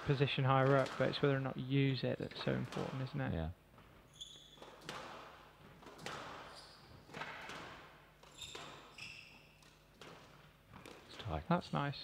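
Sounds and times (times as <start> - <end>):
squash ball hits echoing: 0.0 - 1.4, 2.4 - 3.2, 4.5 - 11.2
shoes squeaking on wooden floor: 3.8 - 11.4.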